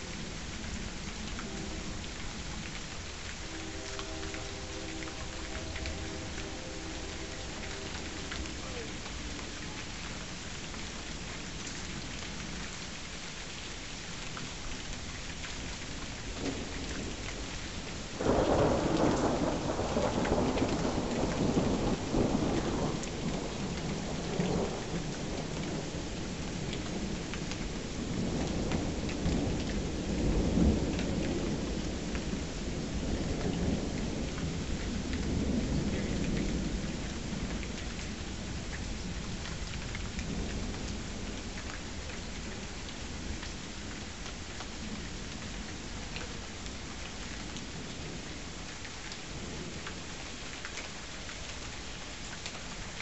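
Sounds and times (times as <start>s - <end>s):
steady rain falling: 0.0s - 53.0s
thunder rumbling: 3.3s - 9.9s, 18.2s - 37.8s.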